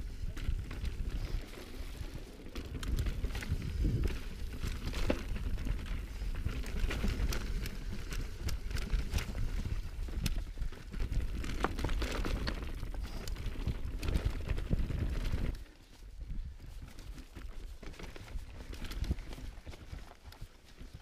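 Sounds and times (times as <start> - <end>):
wind buffeting microphone: 0.0 - 11.6
bike clicks and rattles: 0.0 - 21.0.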